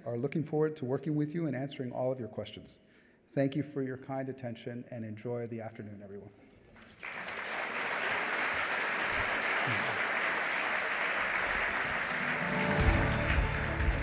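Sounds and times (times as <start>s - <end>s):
audience applauding: 6.8s - 14.0s
music with heavy bass line: 12.8s - 14.0s.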